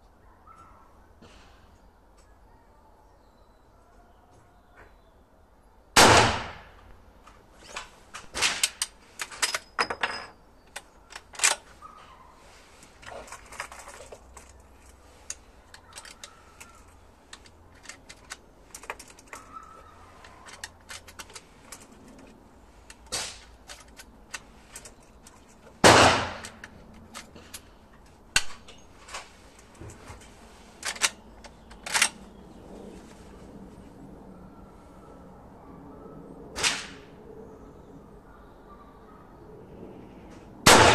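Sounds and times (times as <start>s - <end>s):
rifle shots with echo: 6.0s - 6.8s, 25.8s - 26.6s, 40.7s - 40.9s
rifle reloading clicks and clacks: 7.6s - 10.0s, 10.7s - 11.7s, 13.0s - 27.7s, 28.3s - 32.3s.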